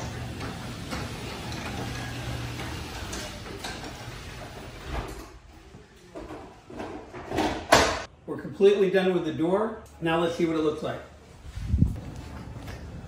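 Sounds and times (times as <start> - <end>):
garage door opener motor hum: 0.0 - 5.2
garage door thumping shut: 7.2 - 8.1.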